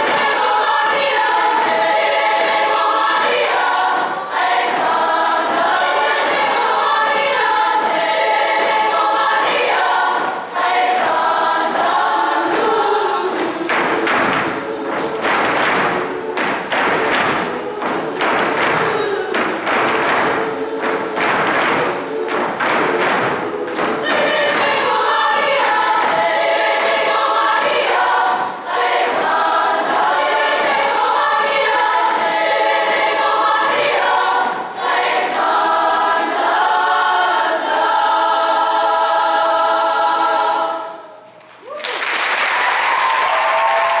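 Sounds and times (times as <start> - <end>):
choir singing in harmony: 0.0 - 41.4
audience applause: 41.6 - 44.0.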